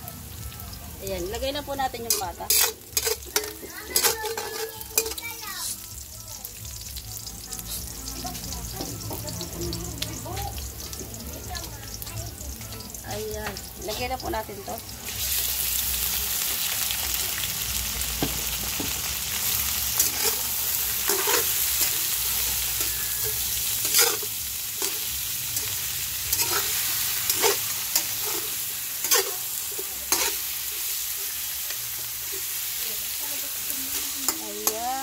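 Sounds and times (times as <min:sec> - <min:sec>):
meat sizzling in a frying pan: 0:00.0 - 0:35.0
metal spatula scraping a pan: 0:01.9 - 0:05.8, 0:19.4 - 0:35.0.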